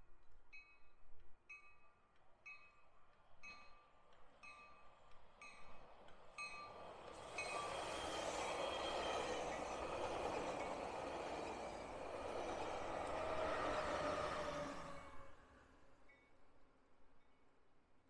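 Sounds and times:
train bell ringing: 0.5s - 13.9s
passenger train passing: 3.4s - 16.3s.

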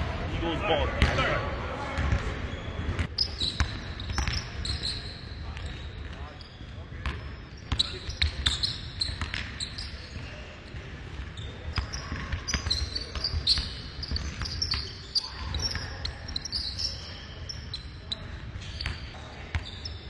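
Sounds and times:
sneakers squeaking: 0.8s - 20.0s
basketball dribbling on court: 7.0s - 14.9s.

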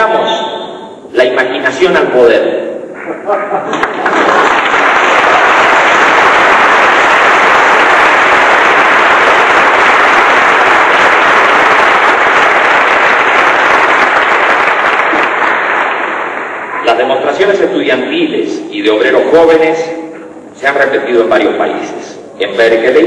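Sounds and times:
audience applauding: 3.7s - 16.8s.

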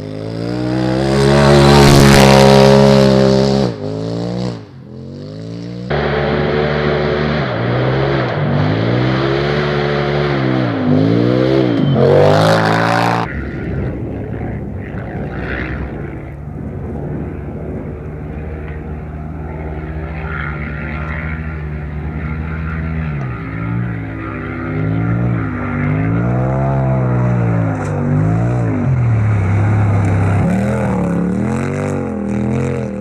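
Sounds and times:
off-road vehicle engine revving: 0.0s - 33.0s
distant engine running steadily: 5.7s - 12.0s, 13.1s - 33.0s.

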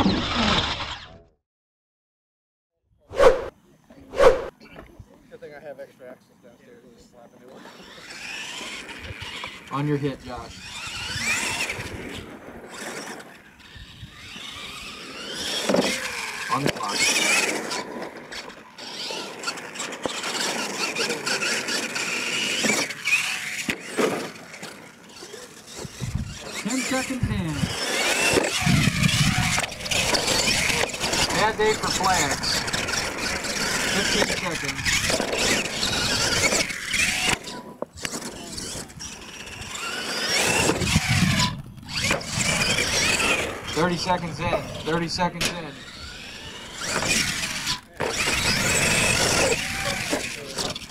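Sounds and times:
toy truck motor whining: 0.0s - 1.3s, 7.4s - 50.9s.

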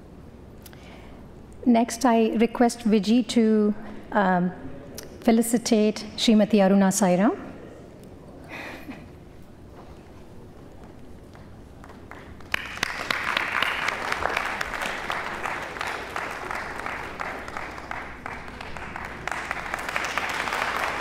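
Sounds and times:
audience applauding: 11.8s - 21.0s.

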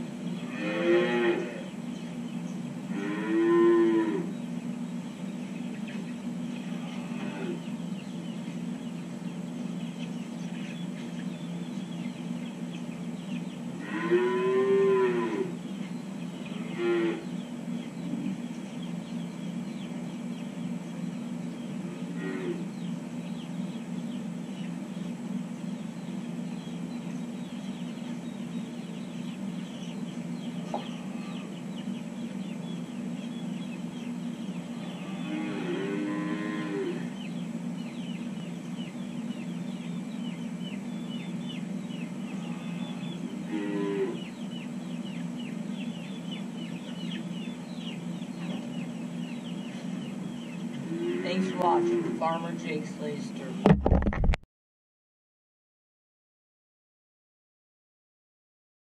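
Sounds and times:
steady low hum: 0.0s - 54.3s
calves mooing: 0.4s - 1.7s, 2.9s - 4.4s, 6.6s - 7.7s, 13.8s - 15.6s, 16.5s - 17.3s, 21.8s - 22.7s, 30.6s - 31.6s, 34.7s - 37.2s, 42.2s - 44.3s, 50.7s - 52.6s.

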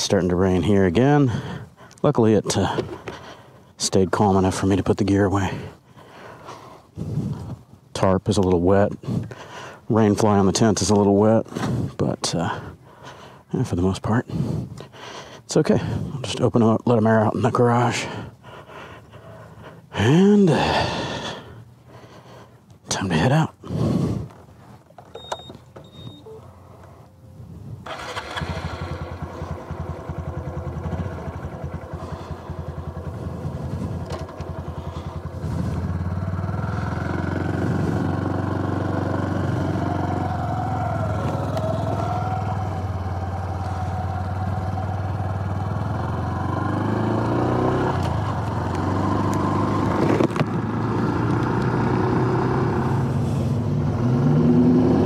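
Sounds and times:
motorcycle engine starting: 0.4s - 5.8s, 23.8s - 55.0s
motorcycle accelerating: 25.2s - 55.0s
motorcycle engine idling: 27.9s - 51.8s.

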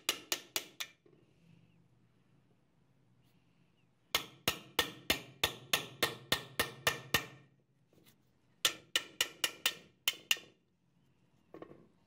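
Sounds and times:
hammer striking steel punch: 4.1s - 7.4s.

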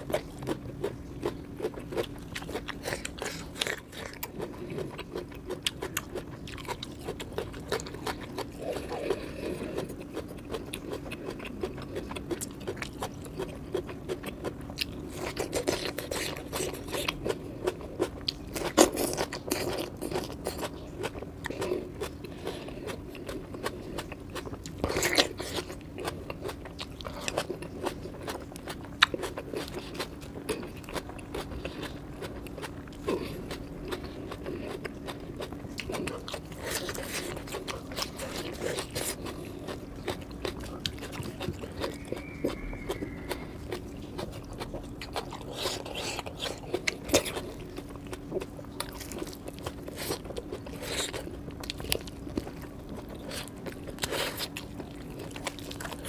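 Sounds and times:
chewing and crunching: 0.0s - 56.0s.

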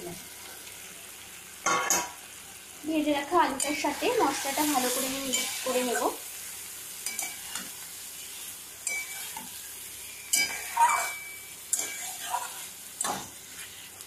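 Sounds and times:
potatoes sizzling in oil: 0.0s - 14.0s
spatula scraping pan: 7.0s - 14.0s.

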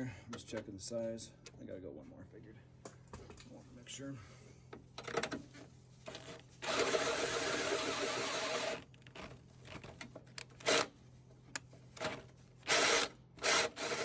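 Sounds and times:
drill boring through metal: 6.6s - 8.8s, 12.7s - 14.0s.

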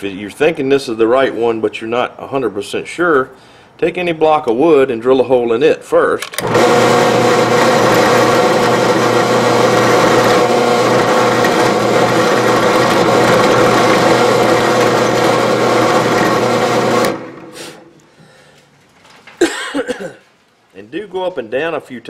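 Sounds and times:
drill press motor running: 6.3s - 17.6s
drill bit drilling wood: 6.4s - 17.6s.

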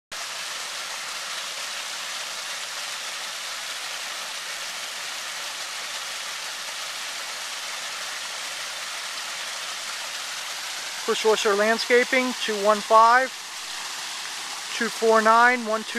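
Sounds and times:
waterfall splashing into pond: 0.1s - 15.9s.

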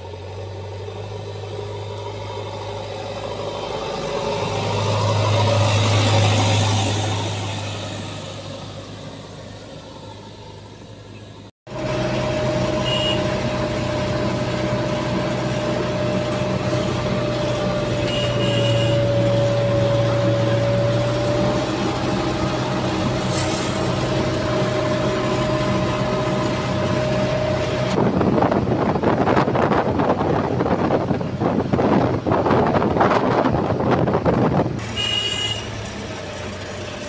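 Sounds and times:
diesel engine running steadily: 0.0s - 37.0s
wind buffeting microphone: 23.9s - 34.8s.

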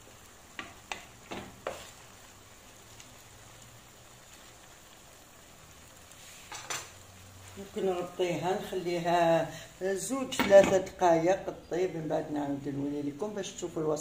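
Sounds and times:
sauce sizzling faintly: 0.0s - 14.0s
spatula knocking frying pan: 0.5s - 1.8s.

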